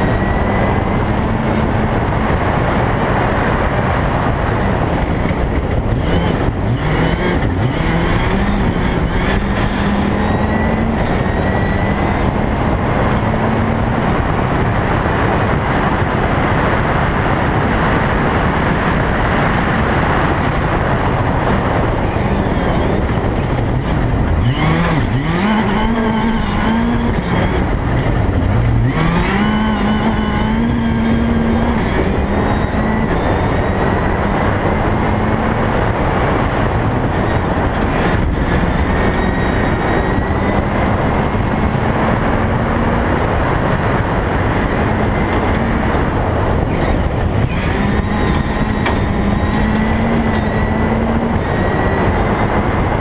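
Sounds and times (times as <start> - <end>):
rally car engine revving: 0.0 - 53.0.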